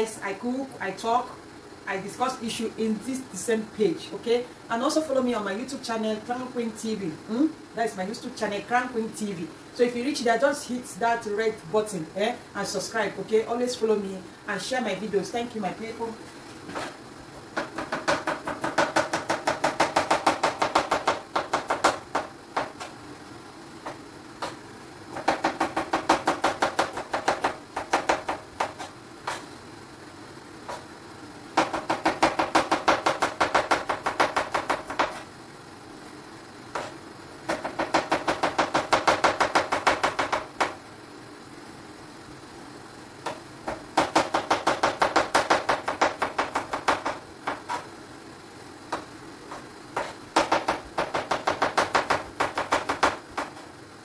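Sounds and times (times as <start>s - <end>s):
knife chopping on cutting board: 17.6s - 23.0s, 23.8s - 29.5s, 30.7s - 30.9s, 31.6s - 35.3s, 36.7s - 40.8s, 43.3s - 47.9s, 48.9s - 53.7s.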